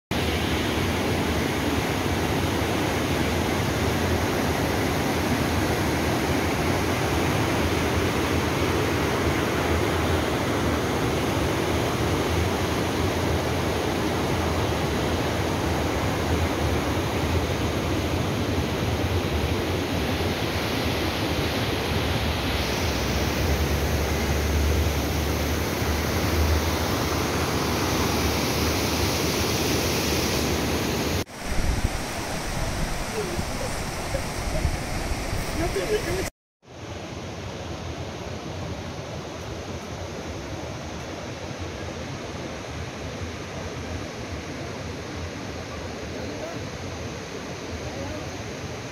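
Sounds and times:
river rapids rushing over boulders: 0:00.2 - 0:36.3.

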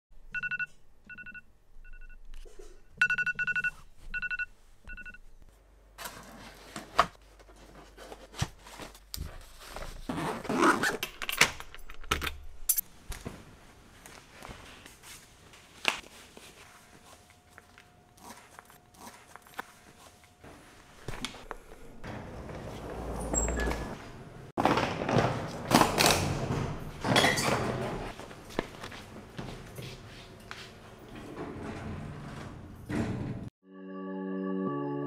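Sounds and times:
zipper: 0:10.0 - 0:11.0.

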